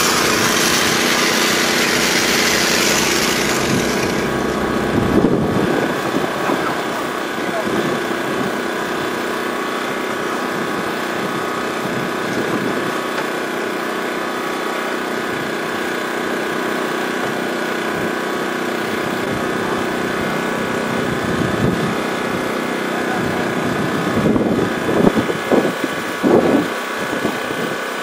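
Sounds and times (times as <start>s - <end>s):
small engine droning: 0.0s - 28.0s.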